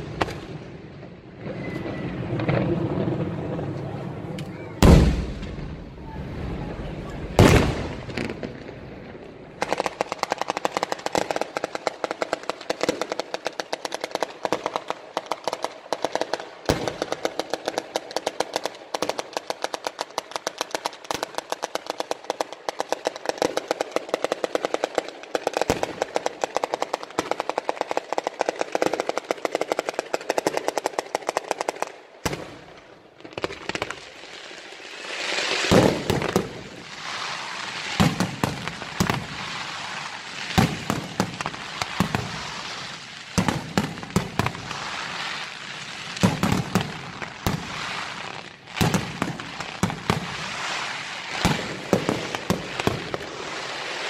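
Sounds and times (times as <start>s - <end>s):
fireworks bang: 0.0s - 10.4s, 35.5s - 42.7s, 46.1s - 48.2s
crackling of fireworks shells: 7.4s - 54.0s
firecrackers rattling: 9.4s - 54.0s.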